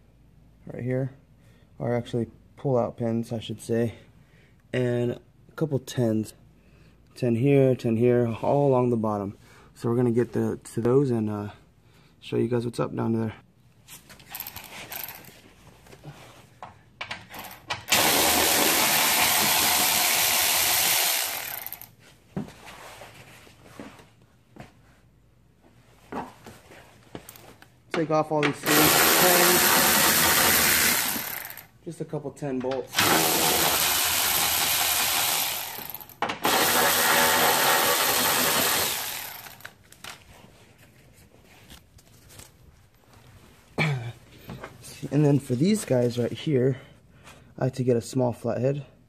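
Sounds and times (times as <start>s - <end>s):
cordless power tool running: 17.4s - 21.9s, 28.6s - 31.7s, 32.9s - 39.7s.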